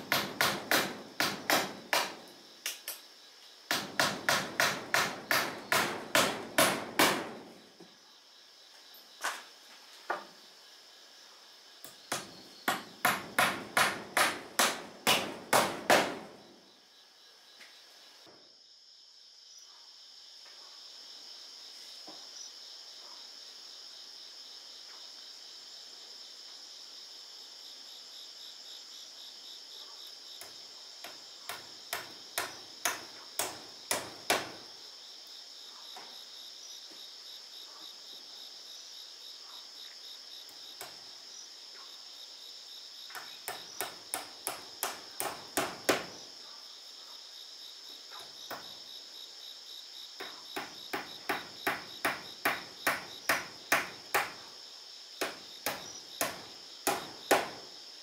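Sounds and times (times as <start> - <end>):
hammer driving nails into wood: 0.0 - 2.8, 3.7 - 7.4, 12.1 - 16.3, 31.0 - 34.6, 43.2 - 46.1, 50.6 - 54.4, 55.2 - 57.6
insects chirring: 0.0 - 58.0.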